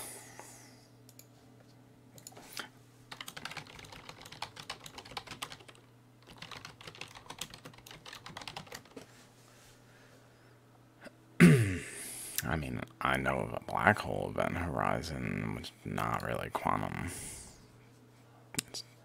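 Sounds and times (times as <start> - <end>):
low steady hum: 0.0 - 19.0
typing on keyboard: 3.1 - 9.0.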